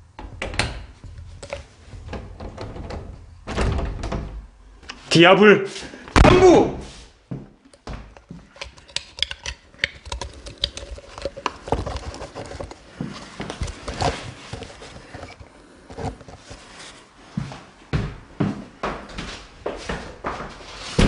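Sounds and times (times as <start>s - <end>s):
footsteps on hard floor: 17.3s - 21.0s.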